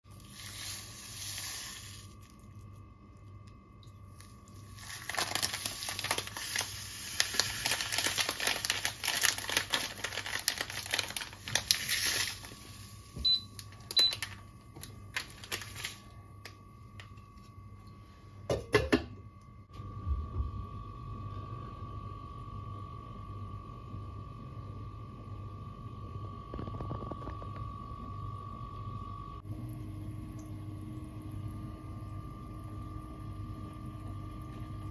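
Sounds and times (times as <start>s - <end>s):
kettle heating water rumble: 0.1s - 34.9s
plastic packet crinkling: 0.2s - 2.4s, 4.2s - 17.1s.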